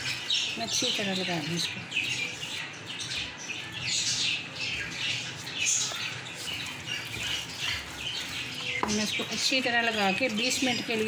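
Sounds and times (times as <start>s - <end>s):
gloved hands squelching raw chicken: 4.4s - 11.0s.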